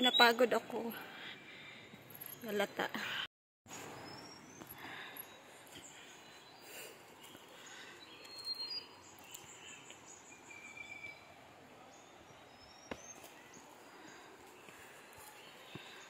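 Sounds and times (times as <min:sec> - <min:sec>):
faint bird chirps: 0:03.7 - 0:16.0.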